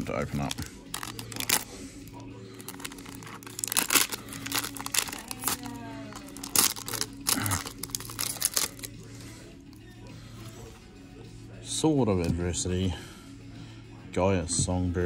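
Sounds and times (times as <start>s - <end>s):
foil wrapper tearing and crinkling: 0.3s - 1.7s, 2.6s - 8.9s.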